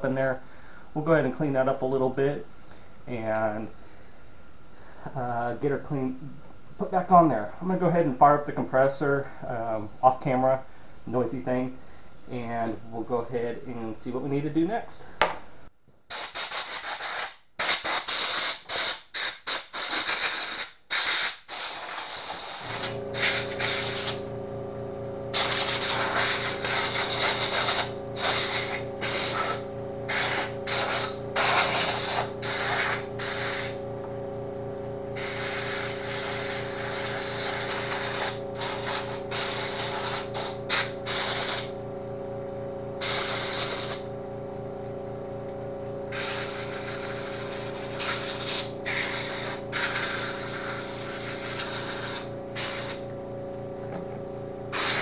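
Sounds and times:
air blow gun hissing: 16.1s - 24.3s, 25.3s - 33.8s, 35.2s - 41.8s, 43.0s - 44.1s, 46.1s - 53.0s, 54.7s - 55.0s
air compressor humming: 16.1s - 55.0s.

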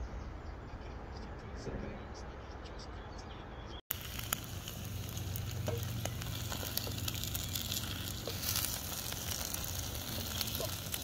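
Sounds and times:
noodles sizzling in a wok: 3.9s - 11.0s
wooden spoon stirring: 5.4s - 11.0s.

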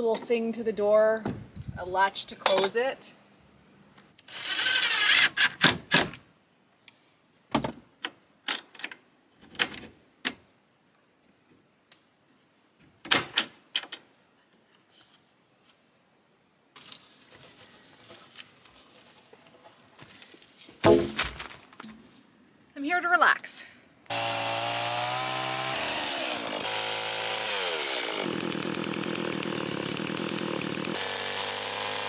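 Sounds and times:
cordless drill driving screw: 4.2s - 5.6s.

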